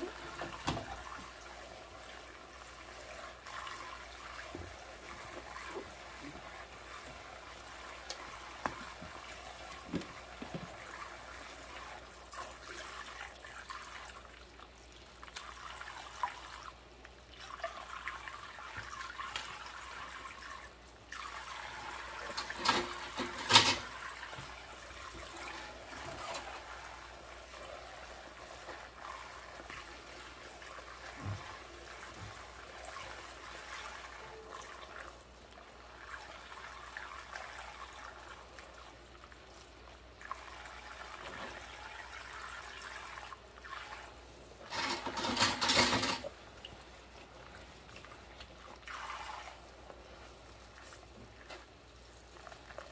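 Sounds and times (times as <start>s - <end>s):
tap water trickling into sink: 0.0s - 1.6s, 2.7s - 11.5s, 12.3s - 20.5s, 21.1s - 27.5s, 28.5s - 49.8s.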